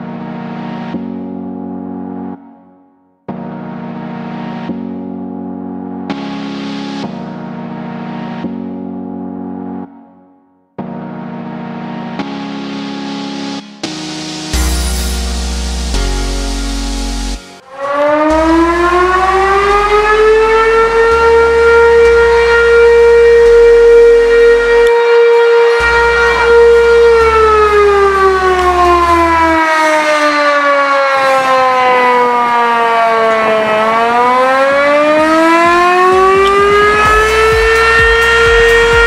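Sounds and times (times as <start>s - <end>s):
fire alarm siren wailing: 17.6s - 39.0s.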